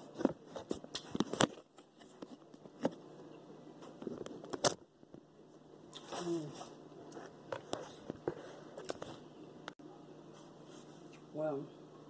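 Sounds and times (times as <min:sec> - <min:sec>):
faint rustling and crunching: 0:00.0 - 0:09.3.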